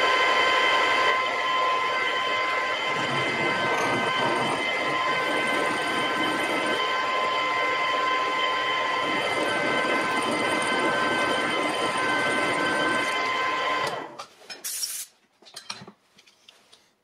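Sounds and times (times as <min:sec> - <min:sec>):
metal lathe whining: 0:00.0 - 0:14.2
short hiss: 0:14.6 - 0:15.1.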